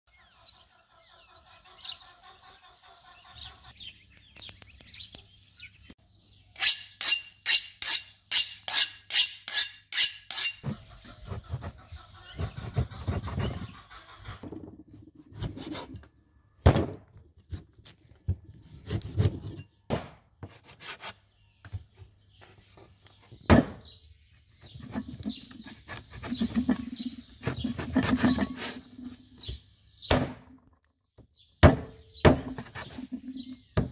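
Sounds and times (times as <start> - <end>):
bird chirping: 0.1 - 7.6, 10.4 - 16.6, 21.2 - 33.9
rubbing and scraping: 6.6 - 16.1, 17.4 - 19.6, 24.4 - 29.4, 32.4 - 33.9
cleaver chopping on wooden board: 30.1 - 30.4, 31.6 - 32.9.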